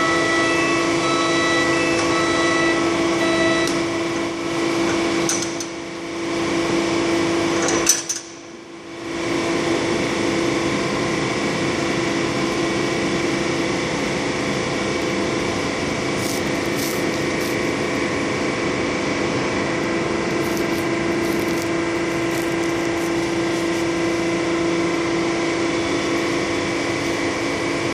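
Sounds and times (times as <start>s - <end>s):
steady machine hum: 0.0s - 7.6s, 8.4s - 27.9s.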